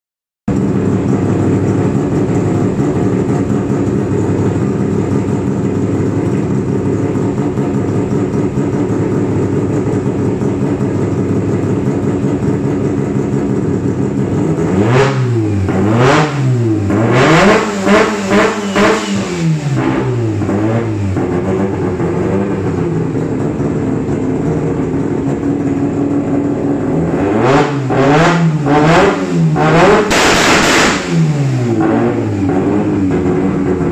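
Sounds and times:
turbocharged engine idling and revving: 0:00.5 - 0:33.9.

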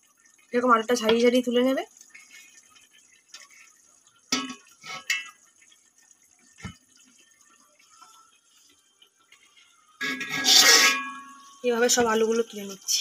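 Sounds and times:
oil sizzling: 0:00.0 - 0:13.0
spoon scraping metal pot: 0:04.4 - 0:05.4, 0:10.0 - 0:11.6.

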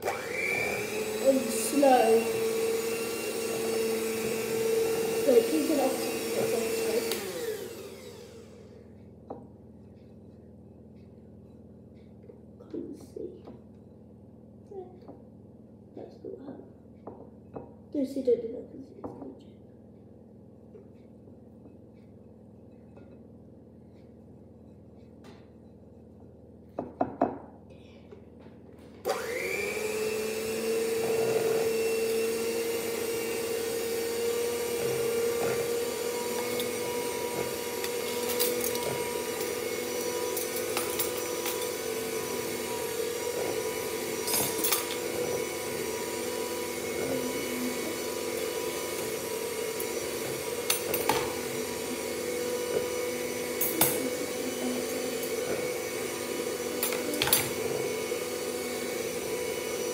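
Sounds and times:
electric hand mixer motor: 0:00.0 - 0:09.2, 0:29.0 - 0:59.9.

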